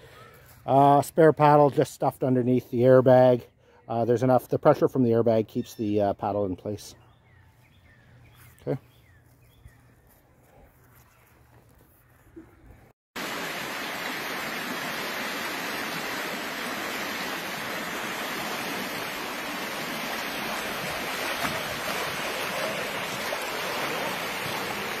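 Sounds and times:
river rapids rushing: 13.2 - 25.0.

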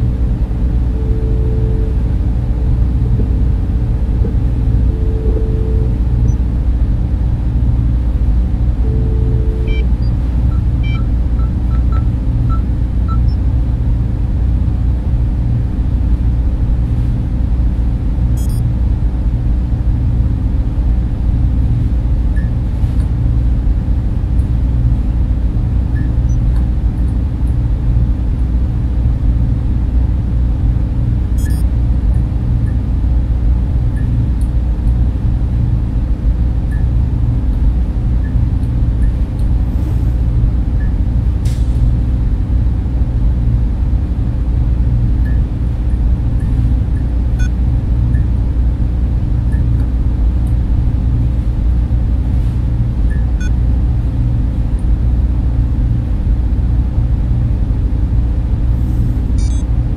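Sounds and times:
server and fan drone: 0.0 - 59.9
faint electronic beeps and clicks: 59.4 - 59.7.

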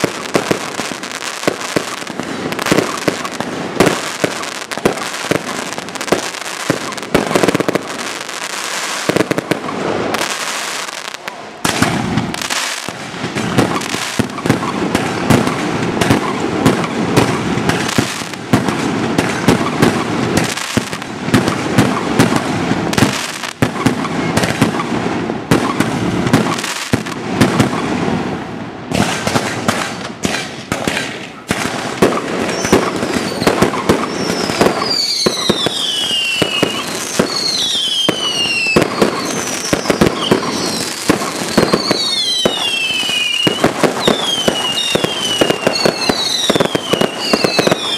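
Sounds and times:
falling firework whistles: 0.0 - 16.4, 32.0 - 47.9
fireworks bangs and crackles: 0.0 - 47.9.

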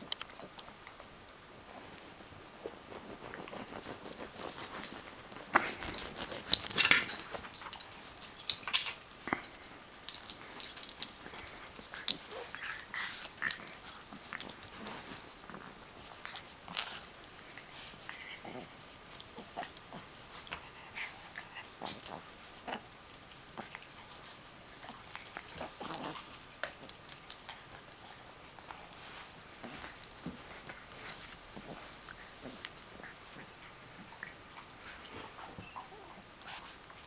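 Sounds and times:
puppies scuffling and clicking: 0.0 - 37.0
puppy whines: 29.8 - 37.0.

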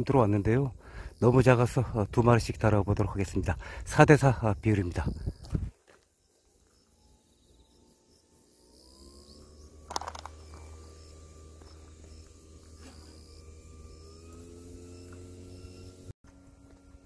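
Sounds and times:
crickets chirping: 0.0 - 17.0
low hum with steady tones: 6.3 - 17.0
sharp click: 9.9 - 10.4.

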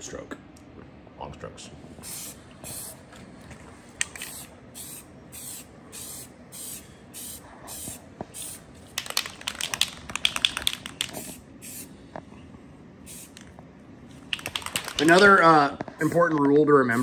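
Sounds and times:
spray paint can hissing: 2.0 - 3.0, 4.1 - 11.9, 13.1 - 13.5, 14.3 - 15.3
sharp clicks: 9.0 - 11.2, 14.3 - 15.2.

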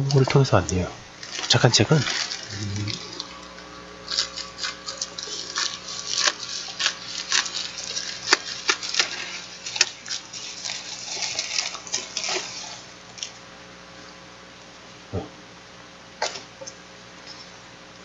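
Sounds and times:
faint steady hum: 0.0 - 18.0
plastic mailer crinkling: 1.2 - 3.4, 4.0 - 13.4.

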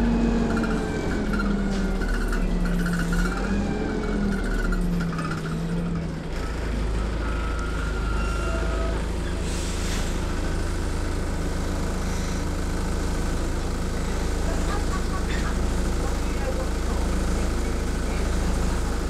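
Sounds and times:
bus engine idling: 0.0 - 19.0.

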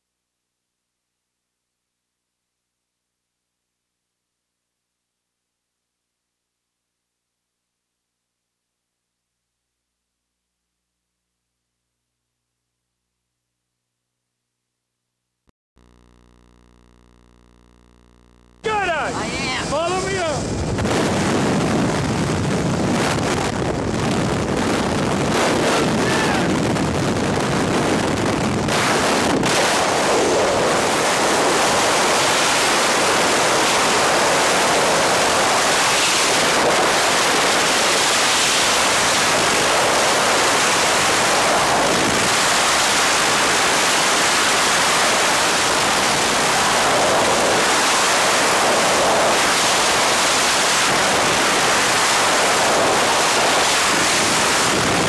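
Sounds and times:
wind rushing over microphone: 19.0 - 55.0.

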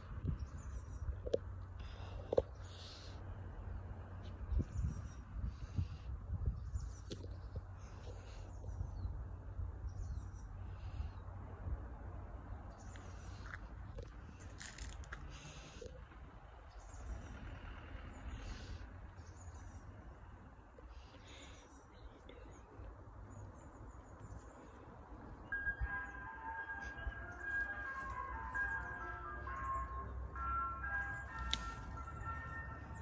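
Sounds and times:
steady low rumble: 0.0 - 33.0
small birds chirping: 18.0 - 32.6
ice cream van chime tune: 24.1 - 33.0.

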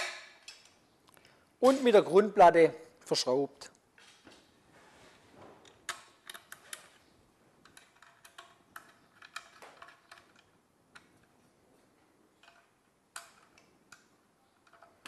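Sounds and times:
hex key clicking on screw: 7.6 - 11.2.

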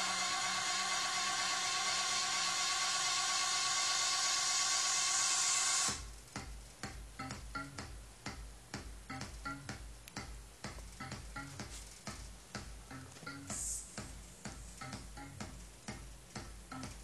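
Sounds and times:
faint clicks with pitched notes: 6.0 - 17.0.

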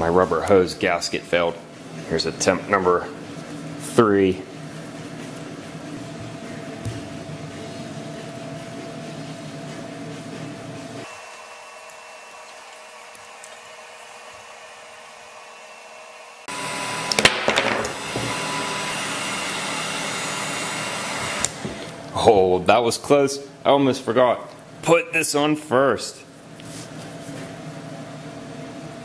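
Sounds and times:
heat gun blower whirring: 5.9 - 22.3.

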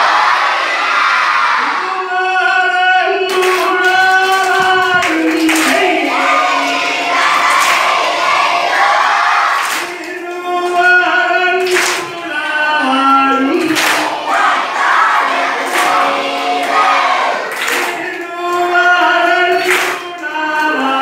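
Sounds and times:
group singing: 0.0 - 21.0
hand claps: 3.2 - 8.2, 9.6 - 12.2, 13.5 - 14.2, 15.6 - 21.0.

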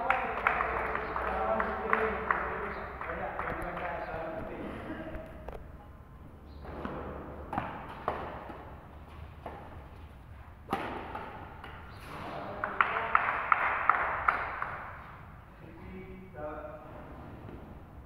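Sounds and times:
people clapping: 0.0 - 4.5, 12.3 - 15.0
racket hitting shuttlecock: 6.7 - 9.9, 10.6 - 12.3.

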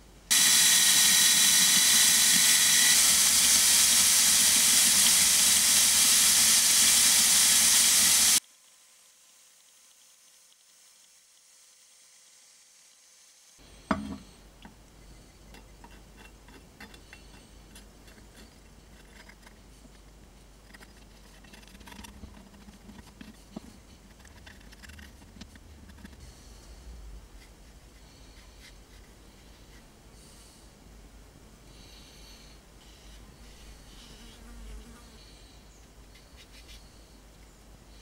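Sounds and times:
low background hum: 13.6 - 38.0.

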